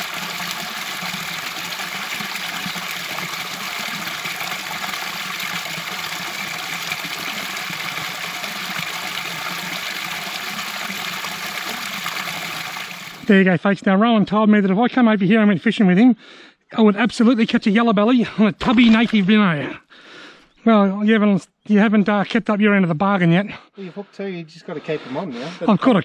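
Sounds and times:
river water rushing: 0.0s - 13.3s.

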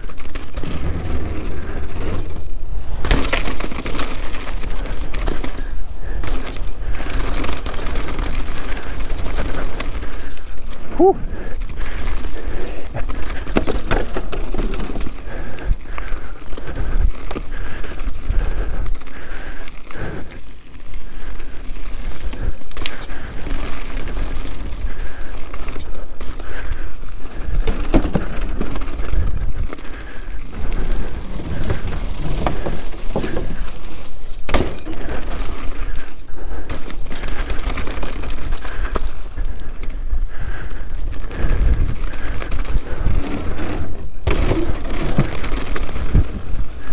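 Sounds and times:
bike rattling: 0.0s - 46.9s
bike tyres on dirt and stones: 0.0s - 46.9s
wind buffeting microphone: 38.8s - 46.9s.

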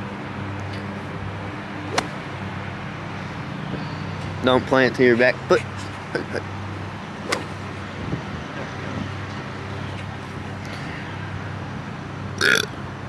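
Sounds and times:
distant lawnmower engine: 0.8s - 8.0s.

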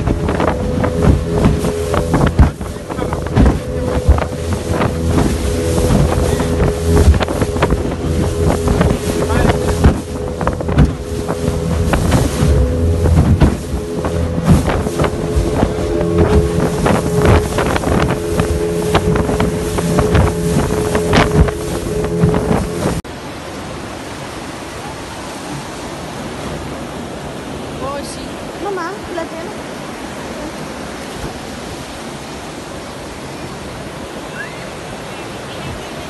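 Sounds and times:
outboard motor running: 0.0s - 23.2s
hull slapping on water: 0.0s - 36.0s
wind buffeting microphone: 0.0s - 36.0s.

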